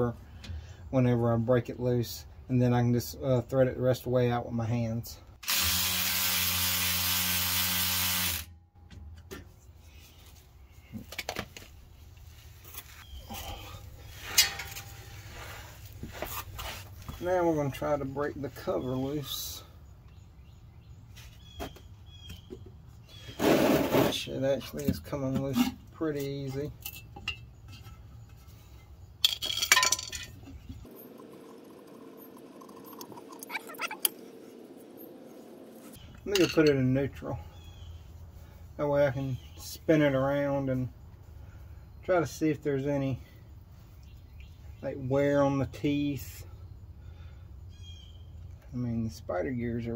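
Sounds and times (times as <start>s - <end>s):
electric ratchet motor running: 5.4s - 8.5s, 30.9s - 34.2s.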